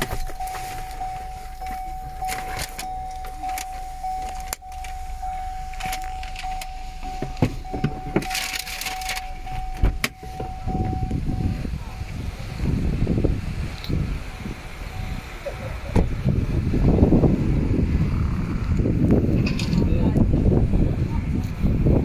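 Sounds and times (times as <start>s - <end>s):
handling rustle: 0.0s - 10.7s
high electronic warning beep: 0.0s - 12.3s, 14.3s - 15.9s
low rumble: 0.0s - 22.0s.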